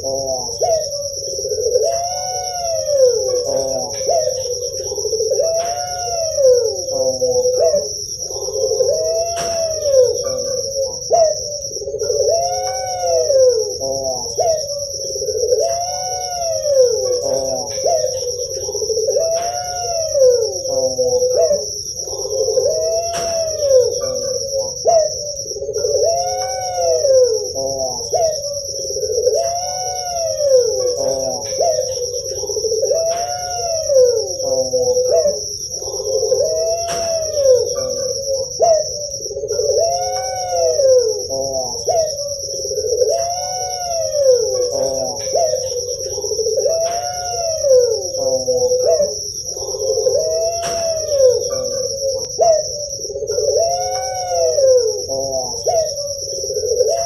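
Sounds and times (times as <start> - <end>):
dove cooing: 0.0 - 57.0
high-pitched shrill tone: 8.9 - 11.7, 22.7 - 25.5, 36.4 - 42.3, 50.2 - 56.3.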